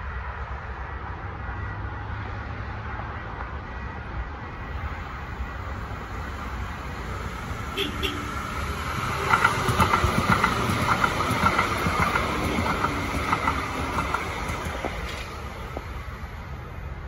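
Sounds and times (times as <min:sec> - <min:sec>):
train wheels clattering on track: 0:08.1 - 0:16.2.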